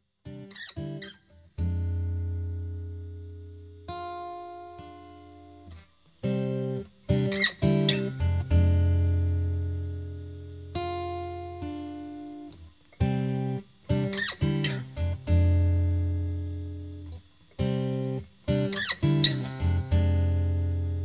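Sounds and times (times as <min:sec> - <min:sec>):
strummed guitar chords: 0:00.3 - 0:21.0.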